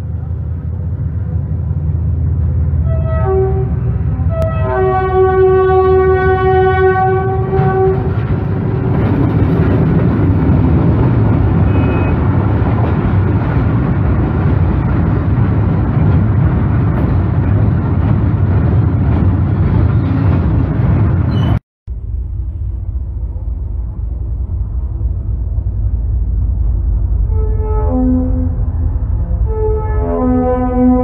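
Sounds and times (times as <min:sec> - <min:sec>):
dull rumble: 0:00.0 - 0:31.0
train horn: 0:02.8 - 0:08.3, 0:11.6 - 0:12.2, 0:27.2 - 0:31.0
freight wagons rumbling and clattering: 0:07.2 - 0:21.6.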